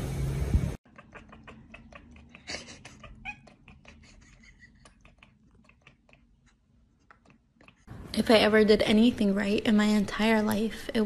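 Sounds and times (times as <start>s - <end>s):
cat chattering: 0.8s - 7.9s.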